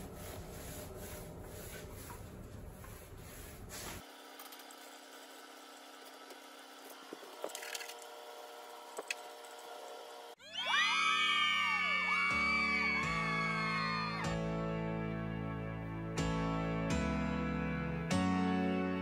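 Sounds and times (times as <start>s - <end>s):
paint roller rubbing on concrete: 0.0s - 4.1s.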